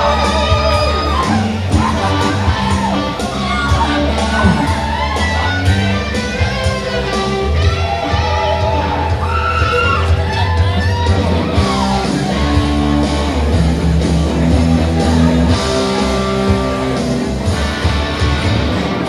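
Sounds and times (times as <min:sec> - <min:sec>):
live rock band playing: 0:00.0 - 0:19.0
electric guitar bending notes: 0:01.4 - 0:07.8.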